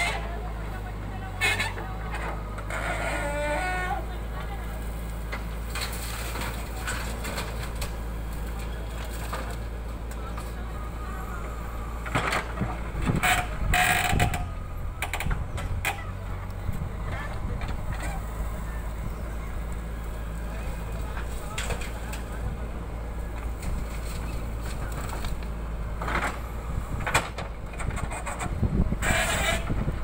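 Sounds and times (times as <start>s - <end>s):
diesel engine running: 0.0s - 30.0s
creaking squeal: 1.4s - 4.0s, 13.1s - 19.5s, 27.9s - 29.8s.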